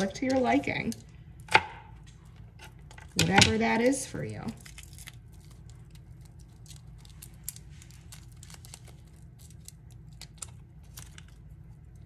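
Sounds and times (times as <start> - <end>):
low hum: 0.0 - 12.0
garlic skins crinkling: 2.5 - 12.0.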